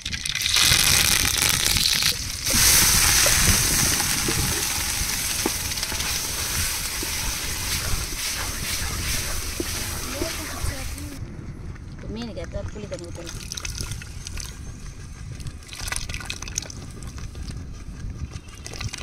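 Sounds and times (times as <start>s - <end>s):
hot oil sizzling in a pot: 0.0s - 11.2s.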